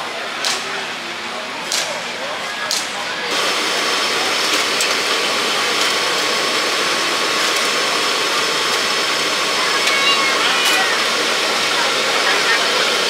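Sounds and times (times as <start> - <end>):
exhaust blower rushing: 3.3 - 13.0.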